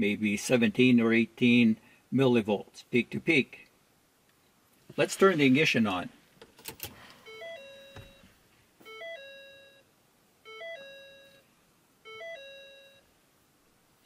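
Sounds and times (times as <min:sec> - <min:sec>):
car dashboard warning chime: 0:07.3 - 0:09.8, 0:10.5 - 0:11.4, 0:12.0 - 0:13.0.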